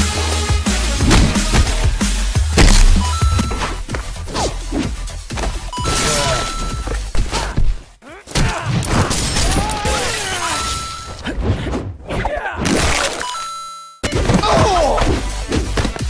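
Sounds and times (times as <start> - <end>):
short steady beep: 3.0 - 3.8, 5.7 - 6.9, 10.5 - 11.2.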